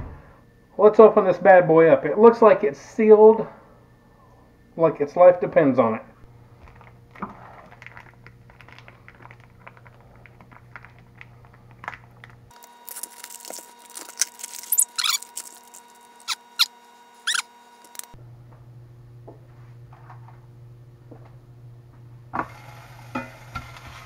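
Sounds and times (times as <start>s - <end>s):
plastic packaging crinkling: 6.6s - 18.2s
plastic peeled off with squeaks: 6.7s - 18.2s.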